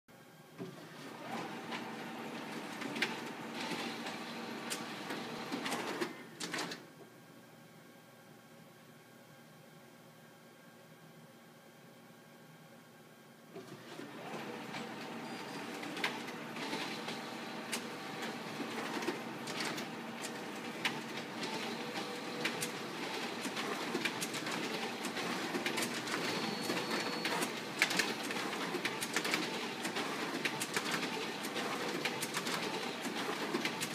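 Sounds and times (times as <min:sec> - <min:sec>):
copier mechanical whir: 0:00.3 - 0:06.9, 0:13.5 - 0:33.9.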